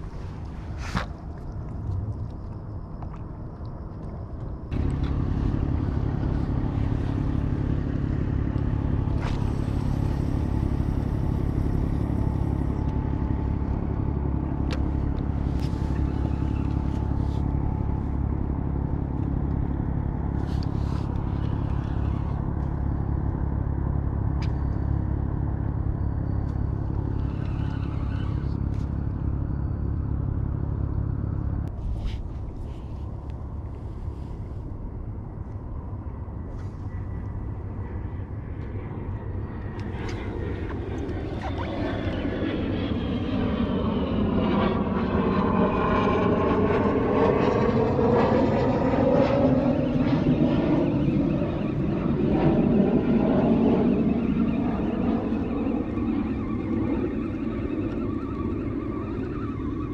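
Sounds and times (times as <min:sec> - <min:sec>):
engine running steadily: 0:00.0 - 0:59.9.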